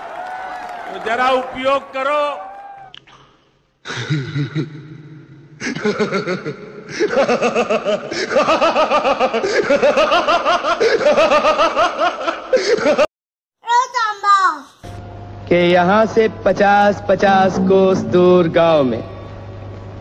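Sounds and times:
person laughing: 0:05.6 - 0:13.1
low hum: 0:16.2 - 0:20.0.

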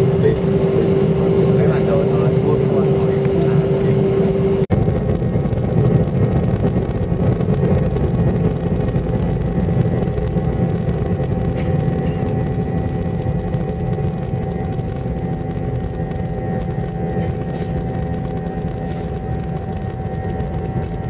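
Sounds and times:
jet engines at takeoff power: 0:00.0 - 0:21.0.

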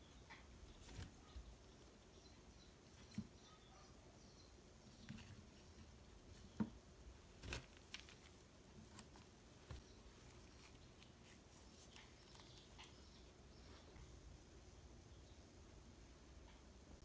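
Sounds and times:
small rustles: 0:00.6 - 0:01.9, 0:04.9 - 0:14.1.

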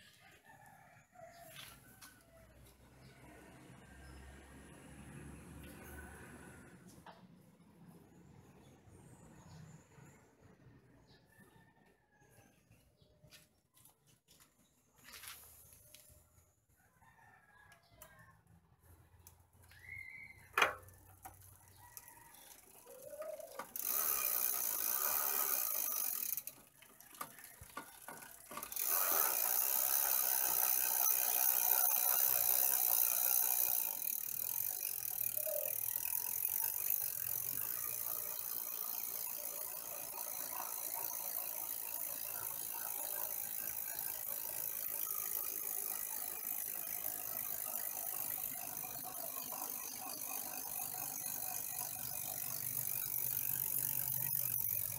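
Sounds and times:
freewheel ratchet clicking: 0:19.2 - 0:54.9
bicycle chain running: 0:19.3 - 0:54.9.

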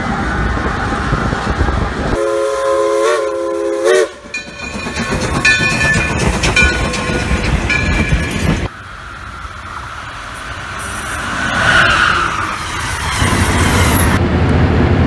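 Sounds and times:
low train rumble: 0:00.0 - 0:15.0
train whistle chord: 0:02.2 - 0:04.3
railroad cars clicking over rails: 0:03.0 - 0:15.0
high wheel squeals: 0:10.7 - 0:14.2.

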